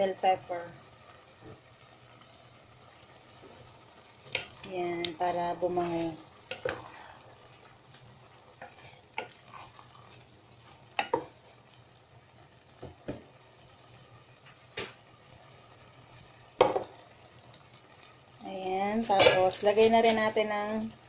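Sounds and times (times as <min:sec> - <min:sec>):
food sizzling: 0:00.0 - 0:21.0
wooden spatula knocking metal pot: 0:11.0 - 0:11.3, 0:16.6 - 0:16.9.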